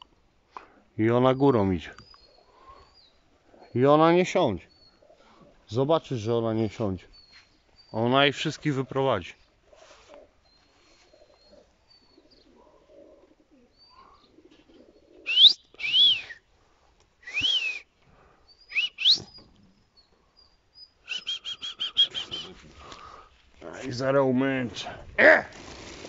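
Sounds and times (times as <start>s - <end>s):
loud short whistles: 15.3s - 16.4s, 17.2s - 17.9s, 18.7s - 19.4s, 21.0s - 22.6s.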